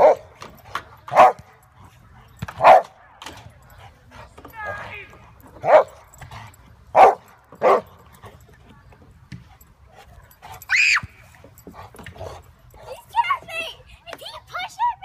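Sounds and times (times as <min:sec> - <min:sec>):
dog barking: 0:00.0 - 0:00.2, 0:01.1 - 0:01.4, 0:02.6 - 0:02.9, 0:05.6 - 0:06.0, 0:07.0 - 0:07.9.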